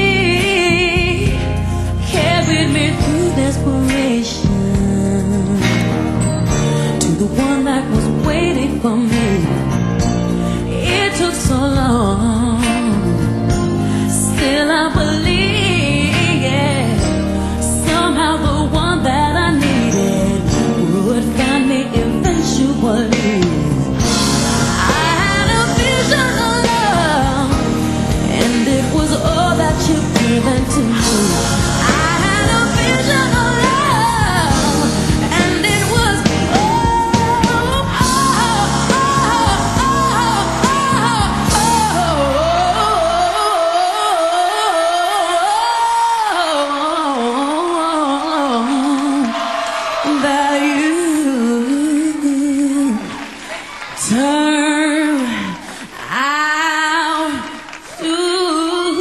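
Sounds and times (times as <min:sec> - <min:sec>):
backing band playing: 0:00.0 - 0:43.8
woman singing: 0:00.0 - 0:53.2, 0:54.0 - 0:59.0.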